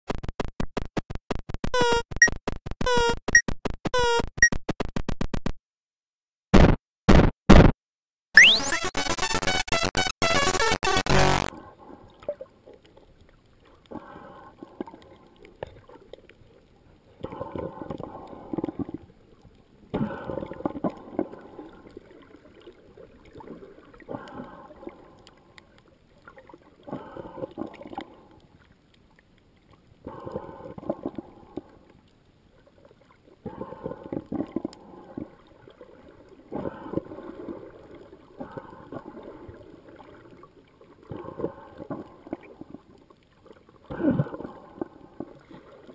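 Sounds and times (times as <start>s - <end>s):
muffled water swishing underwater: 11.5s - 45.9s.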